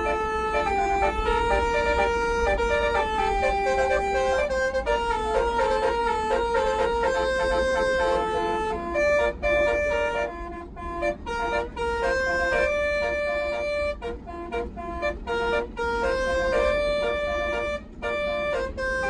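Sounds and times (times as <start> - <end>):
bus engine hum: 0.0 - 19.0
multi-trumpet air horn melody: 0.0 - 19.0.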